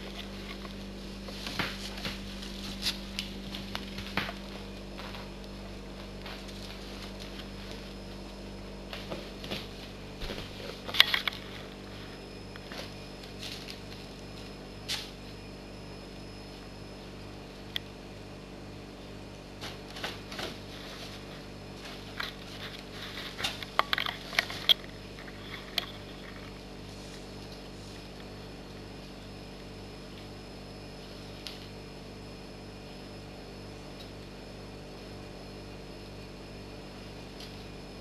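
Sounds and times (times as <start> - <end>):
steady low hum: 0.0 - 38.0
plastic bag crinkling: 22.0 - 26.7.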